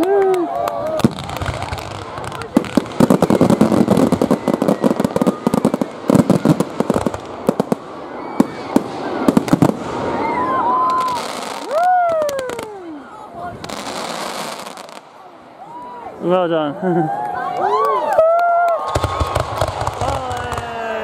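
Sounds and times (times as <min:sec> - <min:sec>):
fireworks bangs and crackle: 0:00.0 - 0:15.2, 0:18.8 - 0:21.0
firework whistling: 0:01.0 - 0:12.7.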